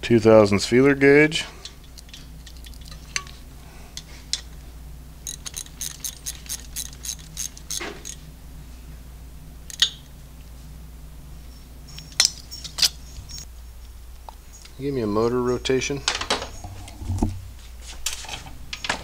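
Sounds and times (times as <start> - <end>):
steady low hum: 0.0 - 18.9
hand ratchet clicking: 5.2 - 8.2
sharp metal clicks: 5.2 - 8.2.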